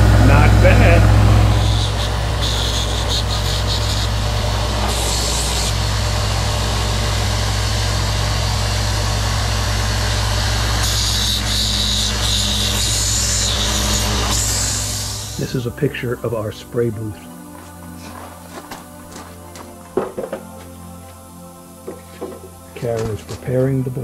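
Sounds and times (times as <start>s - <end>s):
belt sander running: 0.0s - 24.0s
wood rasping on sanding belt: 0.7s - 24.0s.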